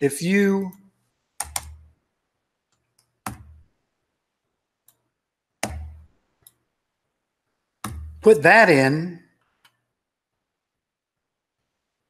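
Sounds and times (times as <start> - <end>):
mouse and keyboard clicks: 1.4 - 1.9, 2.7 - 3.6, 5.6 - 6.6.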